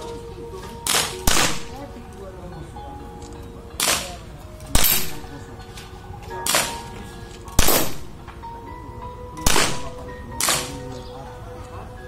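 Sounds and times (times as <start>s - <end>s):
background music: 0.0s - 12.0s
pistol shots: 0.8s - 1.8s, 3.8s - 5.3s, 6.4s - 6.9s, 7.5s - 8.2s, 9.4s - 10.9s.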